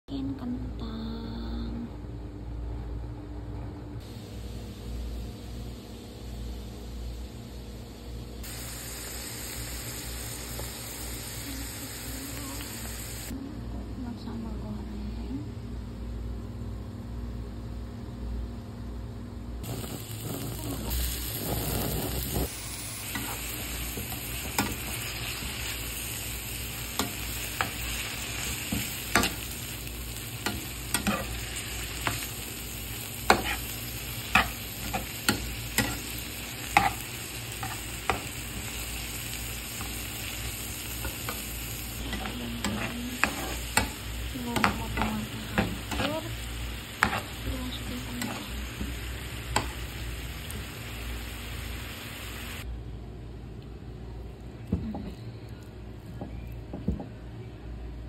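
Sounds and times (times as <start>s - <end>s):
food sizzling in oil: 4.1s - 13.3s, 19.6s - 52.6s
metal spatula scraping pan: 42.0s - 44.0s.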